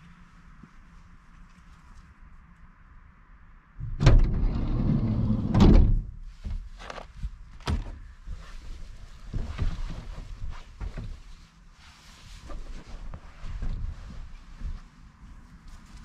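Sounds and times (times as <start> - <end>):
door thud: 3.8 - 4.4
sliding door rolling on track: 3.8 - 5.9.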